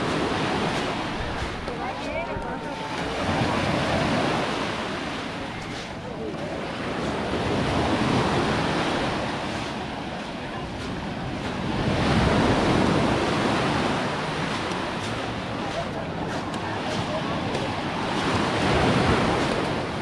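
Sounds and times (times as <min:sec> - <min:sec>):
waves washing up gravel beach: 0:00.0 - 0:20.0.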